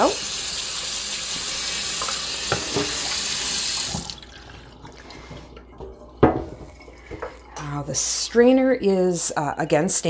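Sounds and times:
faucet water splashing into bowl: 0:00.0 - 0:07.6.

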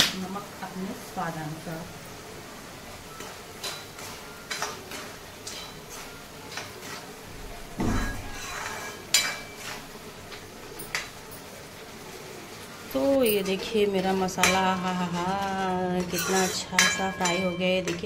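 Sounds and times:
ladle scraping metal pan: 0:07.9 - 0:09.8.

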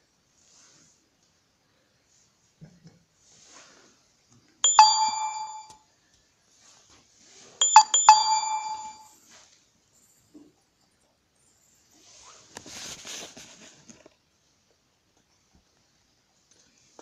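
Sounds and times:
bell-like metallic ring: 0:04.6 - 0:05.8, 0:07.6 - 0:09.1.

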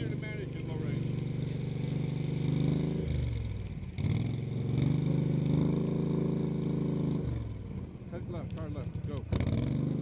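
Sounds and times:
vehicle engine revving under load: 0:00.0 - 0:08.0, 0:08.6 - 0:10.0.

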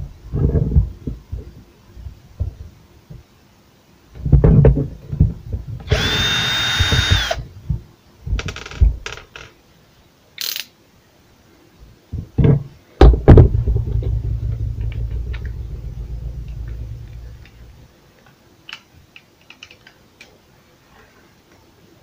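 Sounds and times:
cordless drill whirring: 0:05.9 - 0:07.4
low rubbing handling noise: 0:12.2 - 0:18.0
clicks and knocks of handled parts: 0:18.2 - 0:20.4.

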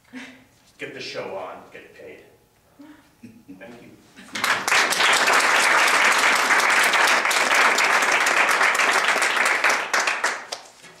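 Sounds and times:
audience applauding: 0:04.4 - 0:10.7.

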